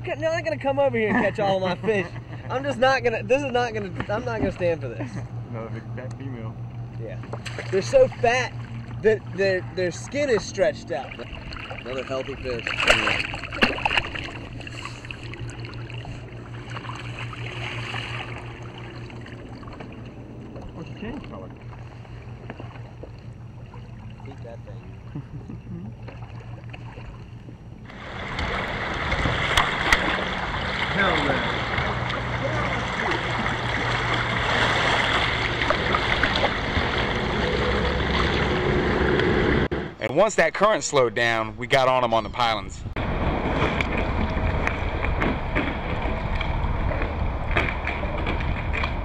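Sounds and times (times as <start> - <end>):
water lapping against hull: 0.0 - 41.3, 42.4 - 49.0
fish splashing at surface: 11.1 - 20.0, 28.0 - 38.6.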